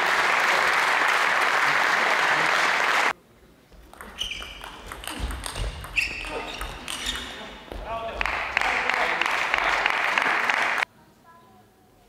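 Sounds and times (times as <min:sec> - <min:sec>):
audience applause: 0:00.0 - 0:03.1, 0:07.9 - 0:10.9
shoes squeaking on court floor: 0:03.7 - 0:08.2.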